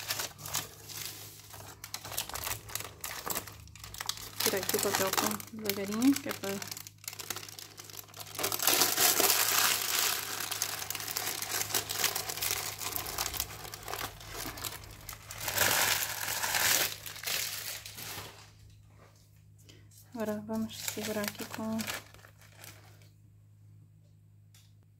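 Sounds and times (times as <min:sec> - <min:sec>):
baking paper crinkling: 0:00.0 - 0:19.3, 0:20.1 - 0:23.2.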